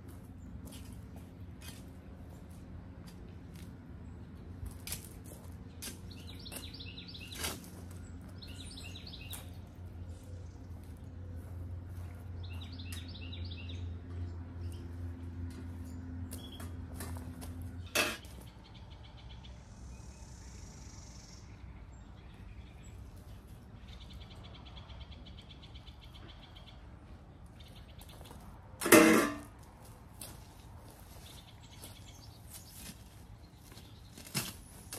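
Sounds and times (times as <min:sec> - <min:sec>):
small birds chirping: 0:05.4 - 0:16.8, 0:17.8 - 0:28.5, 0:30.9 - 0:34.8.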